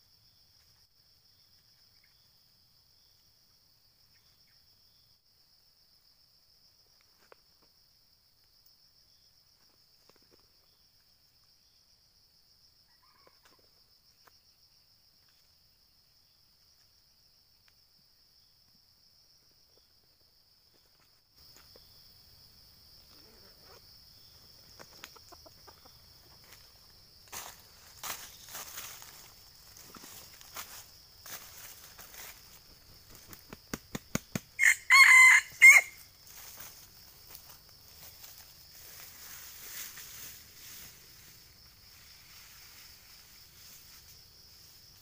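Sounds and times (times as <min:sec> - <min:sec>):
dry leaves rustling: 0:27.3 - 0:33.3, 0:34.6 - 0:41.4.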